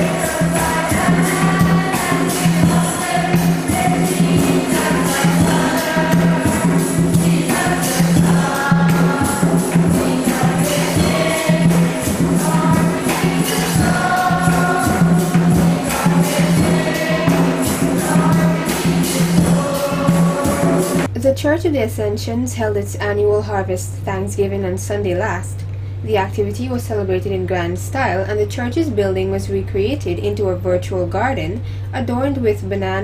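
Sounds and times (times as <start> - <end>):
choir singing with instruments: 0.0 - 21.1
percussion beat: 0.0 - 21.1.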